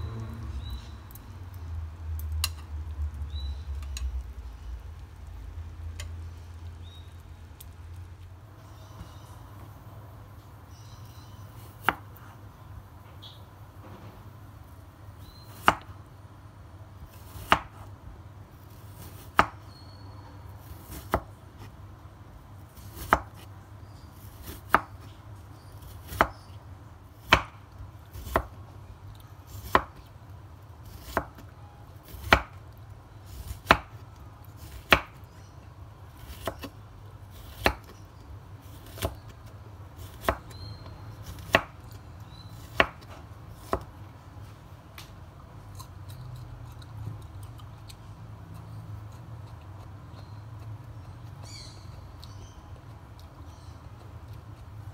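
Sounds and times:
knife slicing cucumber: 0:22.7 - 0:23.5, 0:25.8 - 0:26.5, 0:27.2 - 0:28.6, 0:29.5 - 0:30.1, 0:30.8 - 0:32.6, 0:33.3 - 0:35.2, 0:36.1 - 0:38.0, 0:38.6 - 0:39.4, 0:40.0 - 0:43.9.

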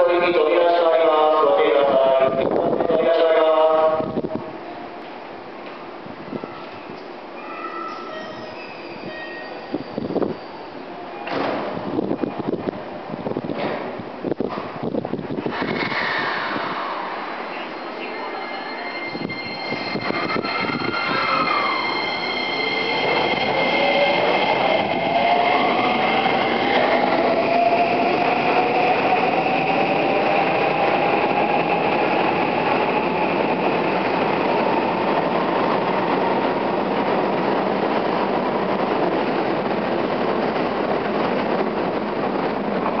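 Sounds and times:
steady high tones: 0:17.0 - 0:35.2.

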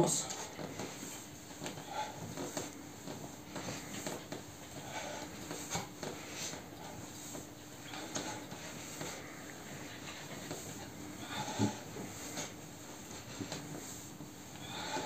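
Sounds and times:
clothing rustling: 0:00.2 - 0:15.0.

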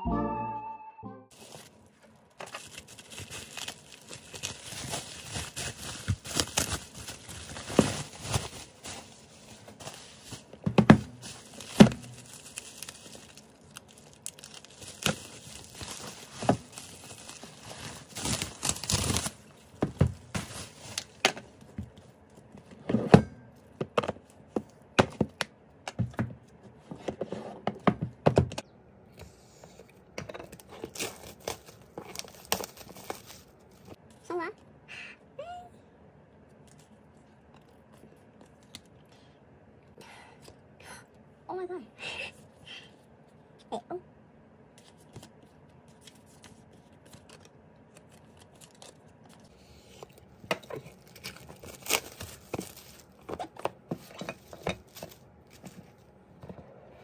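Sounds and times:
bubble wrap crinkling and tearing: 0:01.3 - 0:21.2, 0:30.5 - 0:34.0, 0:45.9 - 0:53.6
boxes thudding on desk: 0:10.6 - 0:11.2.

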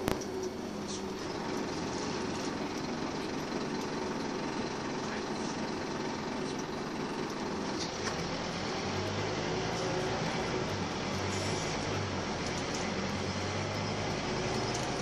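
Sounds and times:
bus diesel engine running: 0:00.0 - 0:15.0
deep low engine hum: 0:00.0 - 0:15.0
road rumble: 0:00.0 - 0:15.0.

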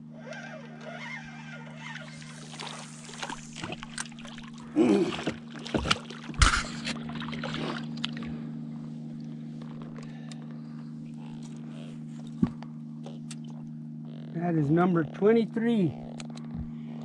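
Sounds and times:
steady low hum: 0:00.0 - 0:17.0
fish splashing in water: 0:00.4 - 0:08.3.

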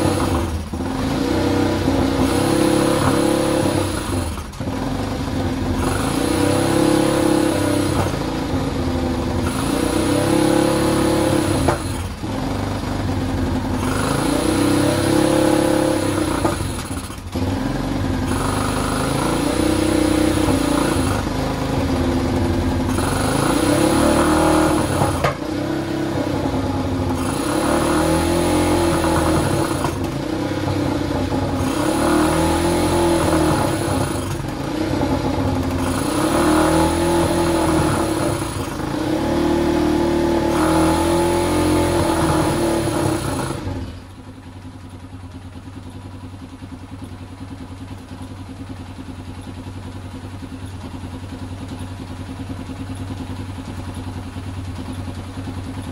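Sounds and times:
engine revving: 0:00.0 - 0:44.4
engine idling: 0:00.0 - 0:55.9.

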